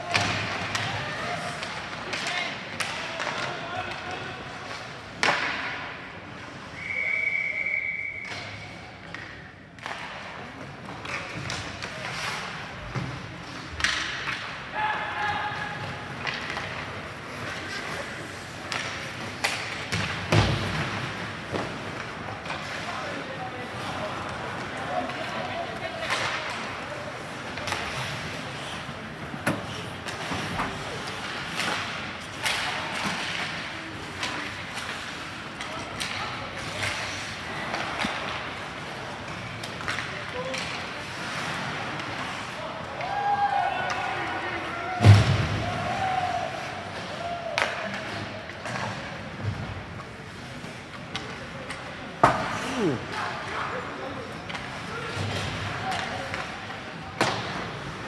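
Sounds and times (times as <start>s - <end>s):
arena noise: 0.0s - 58.0s
referee's whistle: 6.8s - 8.6s
skates scraping ice: 8.6s - 58.0s.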